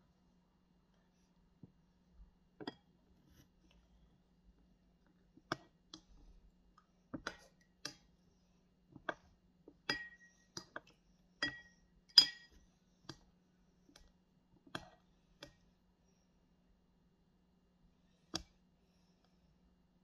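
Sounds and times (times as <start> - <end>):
plastic spoon clinking ceramic bowl: 9.8 - 10.8, 11.4 - 12.6.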